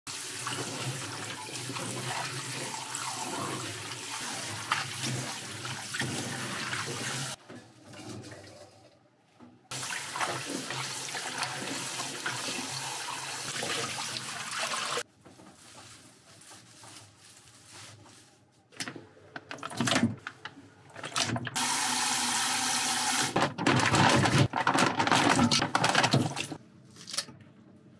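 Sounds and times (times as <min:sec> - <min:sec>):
hands rinsing vegetables: 0:00.1 - 0:09.0, 0:09.7 - 0:18.3.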